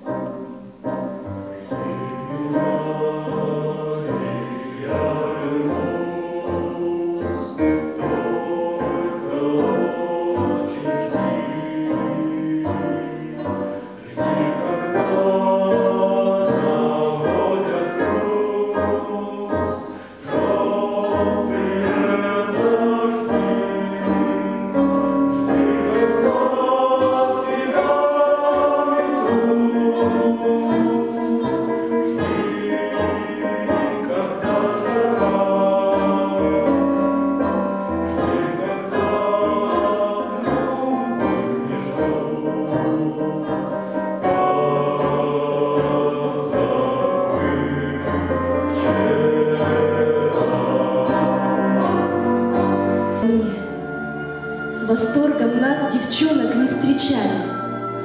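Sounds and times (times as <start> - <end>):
mixed choir singing in harmony: 0.0 - 58.0.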